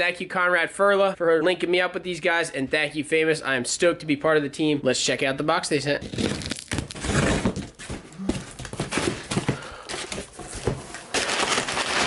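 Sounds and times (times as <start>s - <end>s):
packing paper crinkling: 6.0s - 12.0s.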